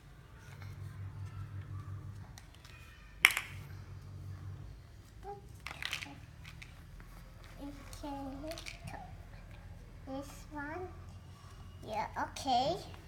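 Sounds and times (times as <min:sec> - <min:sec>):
low steady hum: 0:00.0 - 0:13.0
plastic toys clicking: 0:02.4 - 0:03.6, 0:05.6 - 0:06.9, 0:07.9 - 0:09.0.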